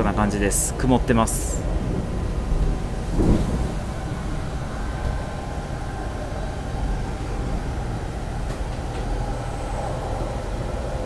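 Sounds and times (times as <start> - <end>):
train cabin rumble: 0.0 - 11.0.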